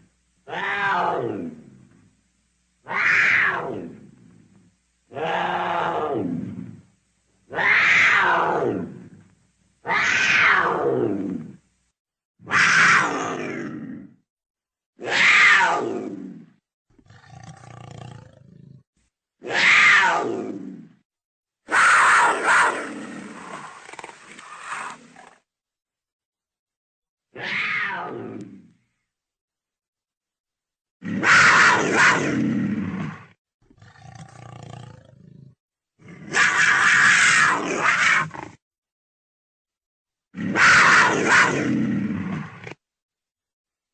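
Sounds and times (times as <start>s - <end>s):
leopard roaring: 0.5s - 2.0s, 2.8s - 6.9s, 7.5s - 11.6s, 12.4s - 14.2s, 15.0s - 18.8s, 19.4s - 21.0s, 21.7s - 25.4s, 27.4s - 28.8s, 31.0s - 38.6s, 40.4s - 42.8s.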